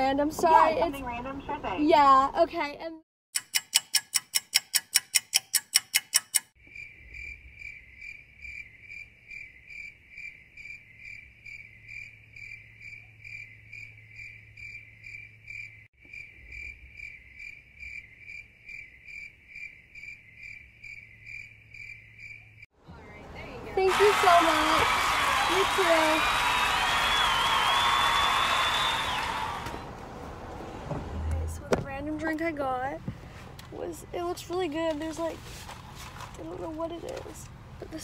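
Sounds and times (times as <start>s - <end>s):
rapid sharp clicking: 3.4s - 6.6s
crickets chirping: 6.6s - 22.7s.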